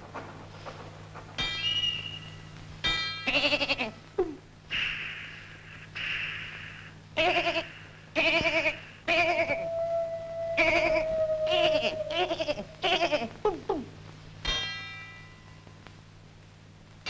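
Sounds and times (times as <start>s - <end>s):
wavering bleating tones: 7.2s - 13.3s.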